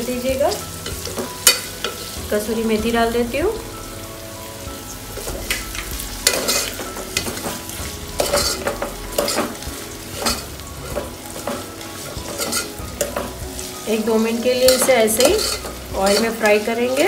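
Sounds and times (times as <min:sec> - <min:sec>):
vegetables sizzling in hot oil: 0:00.0 - 0:17.0
utensil scraping a pan: 0:05.2 - 0:09.6, 0:10.2 - 0:13.4, 0:14.5 - 0:17.0.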